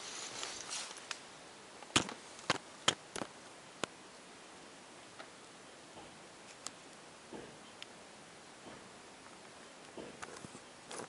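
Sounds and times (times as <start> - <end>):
faint hiss: 0.0 - 11.0
sharp clicks and knocks: 6.0 - 7.9, 9.8 - 11.0.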